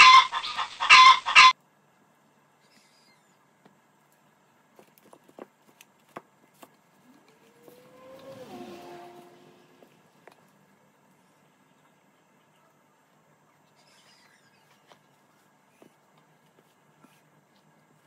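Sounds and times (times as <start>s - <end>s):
rising and falling tone: 7.0s - 10.2s.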